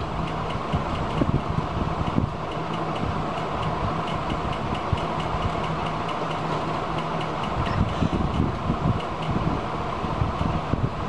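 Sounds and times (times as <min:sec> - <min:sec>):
mechanical hum and rumble: 0:00.0 - 0:11.0
faint regular ticking: 0:02.5 - 0:09.4.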